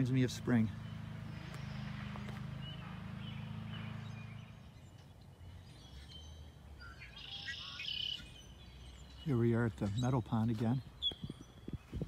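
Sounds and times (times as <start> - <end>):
faint bird calls: 0.7 - 10.2.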